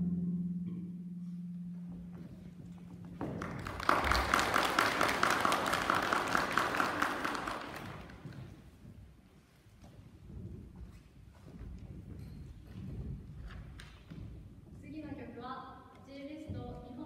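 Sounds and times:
audience clapping: 3.2 - 8.8.

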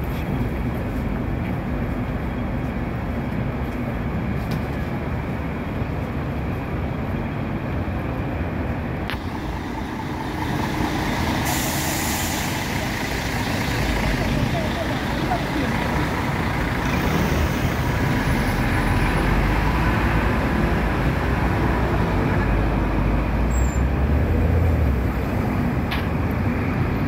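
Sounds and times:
traffic rumble: 0.0 - 27.0
loud hiss: 11.2 - 12.8.

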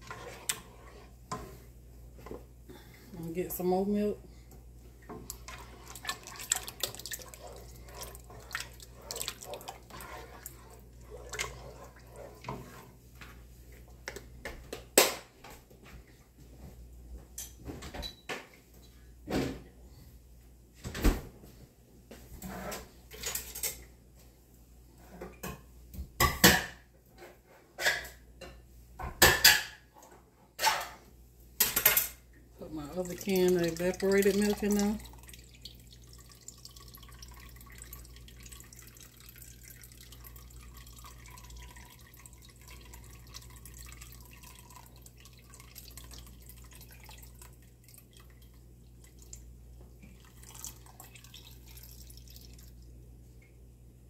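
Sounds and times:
wooden spoon scraping a pot: 0.0 - 2.4, 5.1 - 13.9
milk pouring: 5.2 - 12.8, 32.6 - 52.9.

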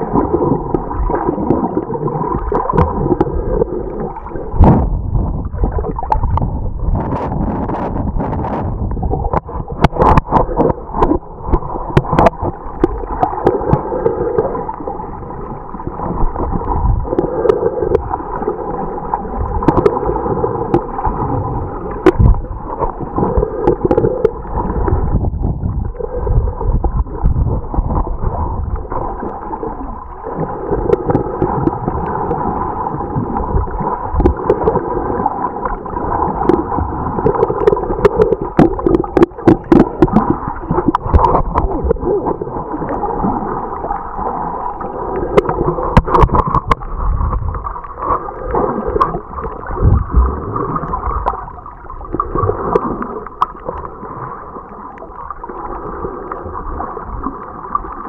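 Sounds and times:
muffled underwater water sloshing: 0.0 - 58.0
pulsing underwater sound: 0.0 - 58.0
sharp clicks and knocks: 45.4 - 46.8.

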